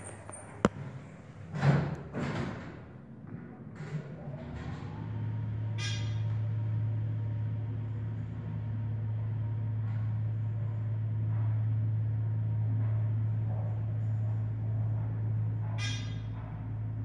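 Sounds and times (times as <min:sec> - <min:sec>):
elevator hoist machine humming: 0:03.8 - 0:17.0.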